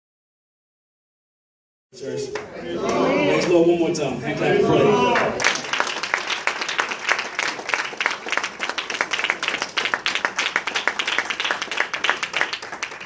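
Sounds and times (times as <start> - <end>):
congregation applauding: 5.0 - 13.0.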